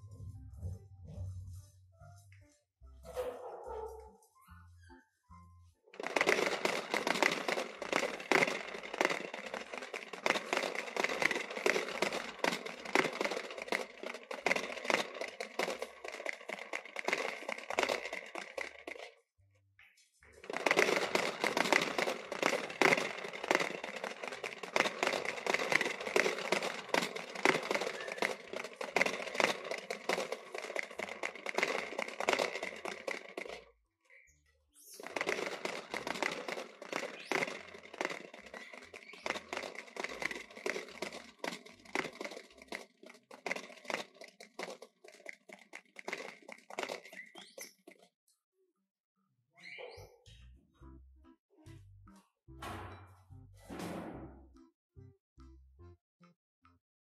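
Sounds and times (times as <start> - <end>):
popcorn crinkling and crunching: 6.0 - 19.1, 20.3 - 33.7, 35.0 - 48.0.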